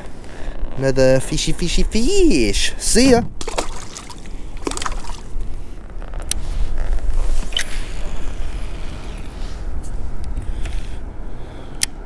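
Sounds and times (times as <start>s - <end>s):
water rumbling against kayak hull: 3.0s - 5.8s.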